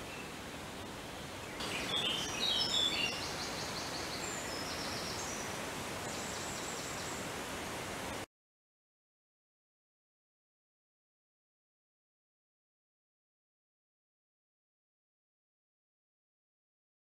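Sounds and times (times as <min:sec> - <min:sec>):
steady outdoor hiss: 0:00.0 - 0:08.3
birds calling: 0:01.4 - 0:07.3.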